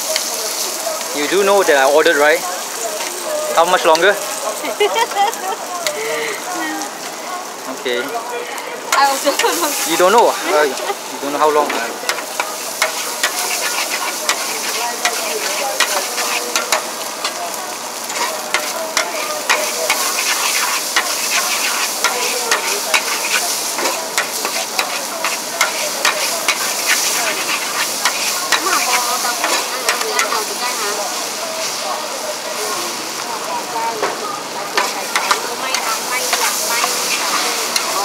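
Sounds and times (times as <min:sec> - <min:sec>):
noodles sizzling in a wok: 0:00.0 - 0:38.0
metal spatula scraping a wok: 0:11.6 - 0:17.4, 0:18.0 - 0:31.0, 0:34.8 - 0:38.0.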